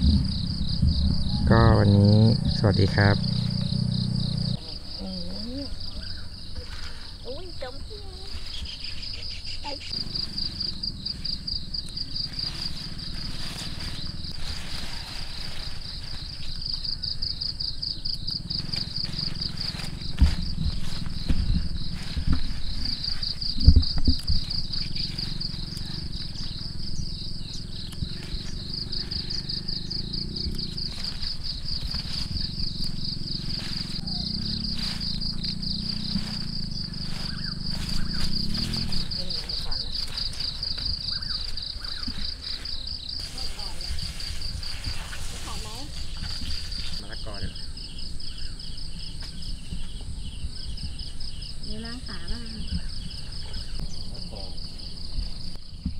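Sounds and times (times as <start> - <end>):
low rumble: 0.0 - 4.9
insects trilling: 0.0 - 55.9.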